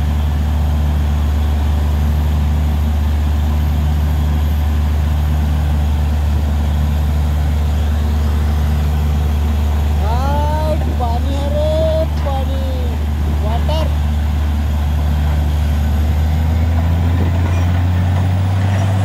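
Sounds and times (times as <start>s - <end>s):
drilling rig engine drone: 0.0s - 19.0s.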